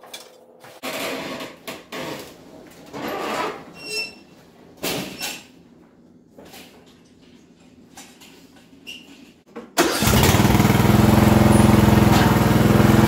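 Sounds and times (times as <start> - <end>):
lawn tractor rolling on concrete: 9.8 - 13.0.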